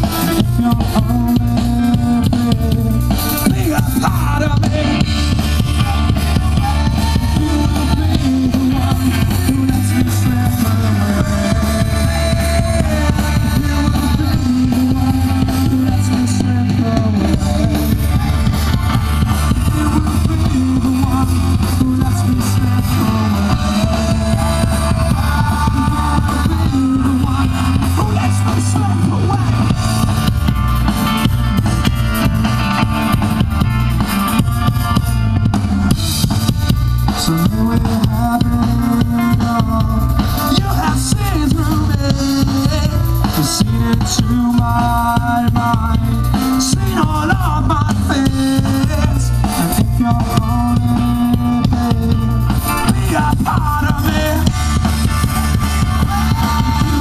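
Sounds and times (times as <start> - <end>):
drum kit: 0.0 - 57.0
electric guitars: 0.0 - 57.0.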